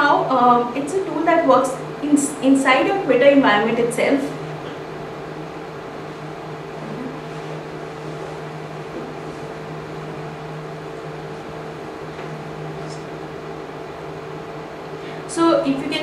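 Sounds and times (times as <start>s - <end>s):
fan hum and hiss: 0.0s - 16.0s.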